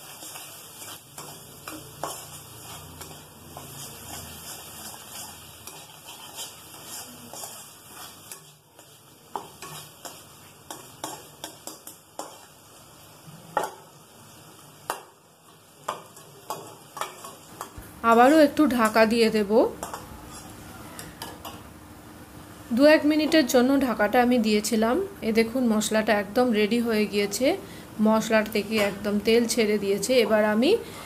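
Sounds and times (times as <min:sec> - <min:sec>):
spatula scraping metal pan: 0:00.0 - 0:12.5, 0:19.8 - 0:20.5
faint sizzle: 0:00.0 - 0:31.0.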